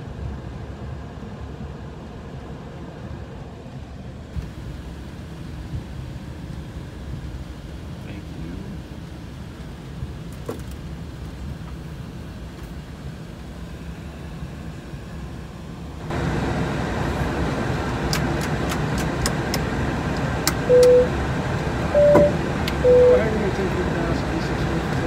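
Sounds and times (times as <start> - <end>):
jet cockpit low rumble: 0.0 - 25.0
sharp clicks: 18.1 - 21.0.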